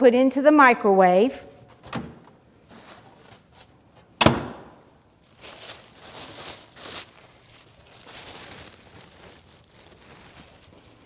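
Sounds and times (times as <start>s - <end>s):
cloth rustling: 5.2s - 11.0s.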